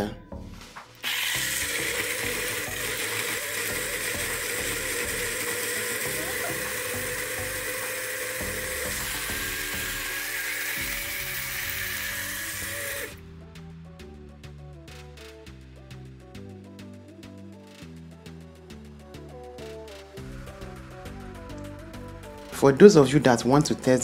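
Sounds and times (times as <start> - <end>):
portable blender whirring: 1.0 - 13.2.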